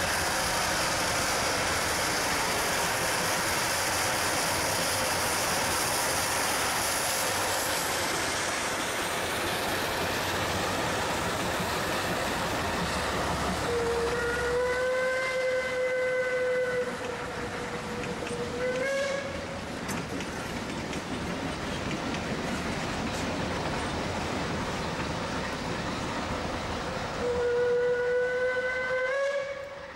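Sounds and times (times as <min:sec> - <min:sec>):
loud steam hissing: 0:00.0 - 0:29.9
steam train passing: 0:00.0 - 0:29.9
steam whistle blast: 0:13.7 - 0:19.4, 0:27.2 - 0:29.9.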